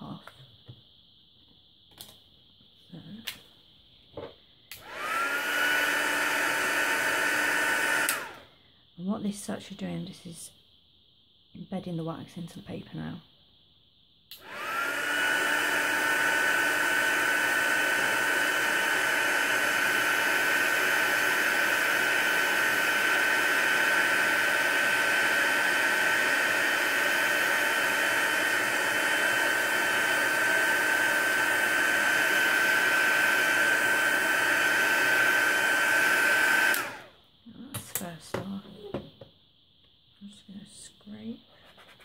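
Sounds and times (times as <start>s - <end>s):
heat gun running: 4.7s - 8.4s, 14.3s - 37.2s.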